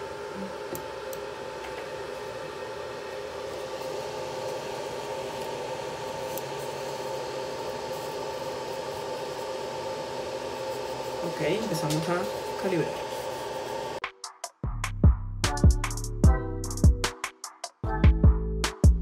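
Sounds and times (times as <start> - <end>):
printer humming with fans: 0.0 - 14.0.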